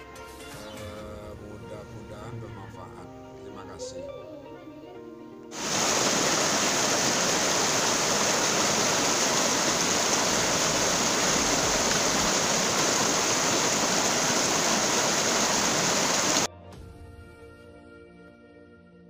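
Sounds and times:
stream rushing over stones: 5.5s - 16.5s.

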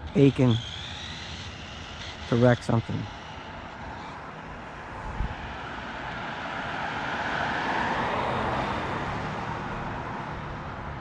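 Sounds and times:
toy truck motor and tyres rushing: 0.0s - 11.0s.

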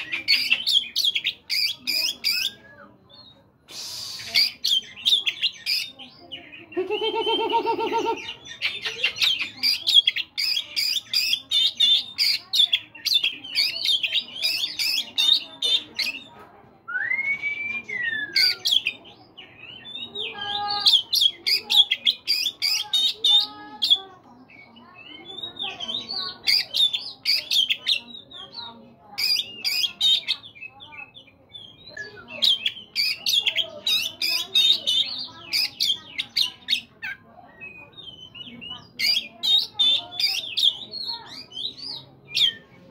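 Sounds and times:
songbird singing: 0.0s - 42.9s
bird singing varied whistles: 16.9s - 18.9s.

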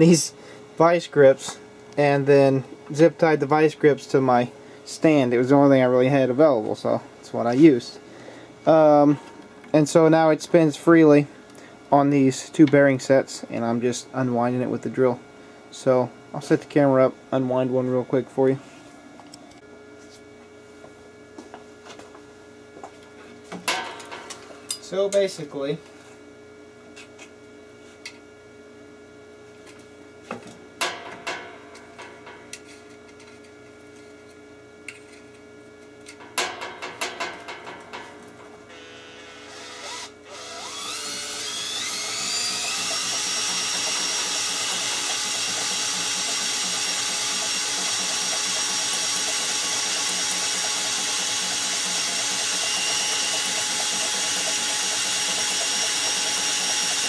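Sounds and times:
cordless drill whining: 38.7s - 57.0s.

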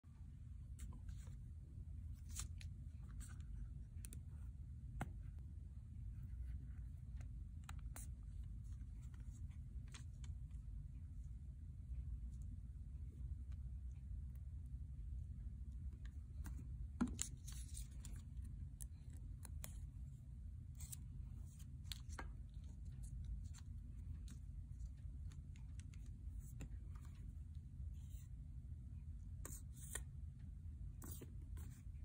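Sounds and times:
low steady hum: 0.0s - 32.0s
paper rustling: 16.4s - 19.8s.

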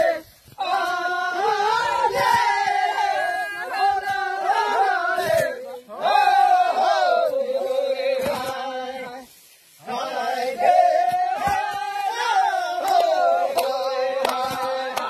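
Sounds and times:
men chanting together: 0.0s - 15.0s.

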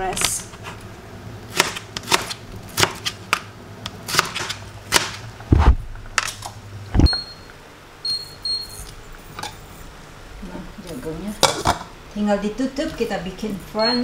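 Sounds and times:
knife chopping on cutting board: 1.5s - 3.4s, 4.1s - 5.8s
hob touch control beeps: 7.0s - 8.9s, 13.8s - 14.0s.

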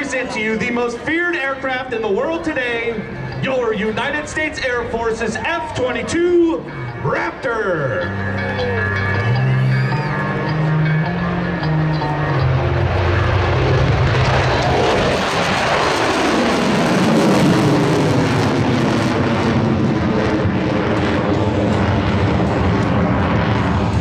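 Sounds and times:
fighter jet roaring past: 0.0s - 24.0s.

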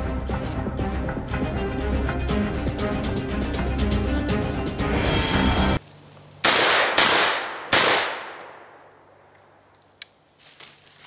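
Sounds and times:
shotgun shots echoing: 6.4s - 9.0s.

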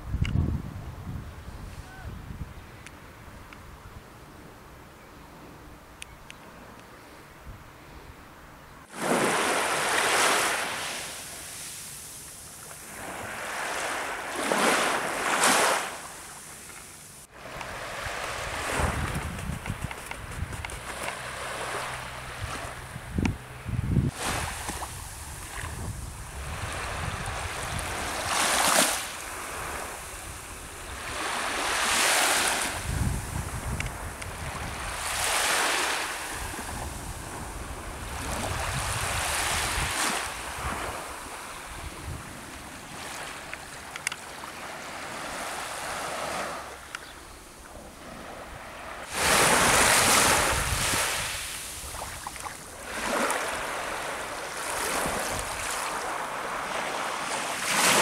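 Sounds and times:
wind rumble on microphone: 0.0s - 4.1s, 17.4s - 43.7s, 47.6s - 56.2s
small waves breaking on shore: 8.8s - 19.3s, 20.8s - 23.2s, 24.0s - 58.0s.

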